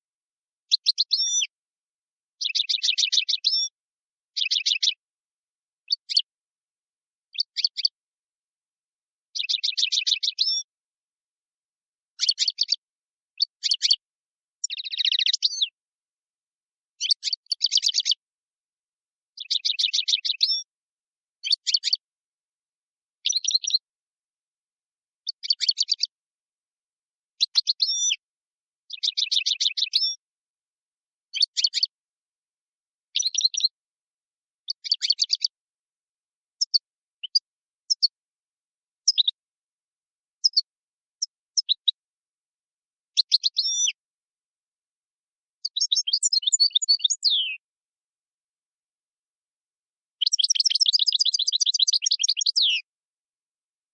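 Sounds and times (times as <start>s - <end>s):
finch singing trilled phrases: 0.7s - 1.6s, 2.4s - 5.0s, 5.8s - 6.3s, 7.3s - 8.0s, 9.3s - 10.7s, 12.2s - 15.8s, 17.0s - 18.2s, 19.4s - 20.7s, 21.4s - 22.1s, 23.2s - 23.9s, 25.2s - 26.2s, 27.4s - 28.2s, 28.9s - 30.2s, 31.3s - 32.0s, 33.1s - 33.8s, 34.7s - 35.6s, 36.6s - 38.2s, 39.0s - 39.4s, 40.4s - 42.0s, 43.1s - 44.0s, 45.6s - 47.6s, 50.2s - 52.9s.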